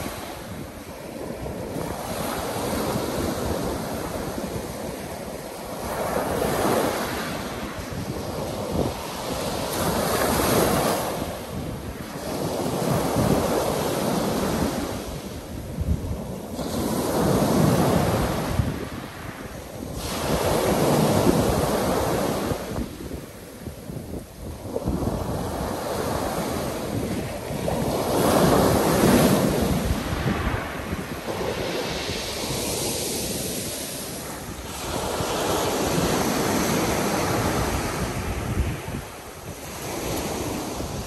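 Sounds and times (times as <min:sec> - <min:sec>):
surf breaking on pebble beach: 0:27.7 - 0:38.3.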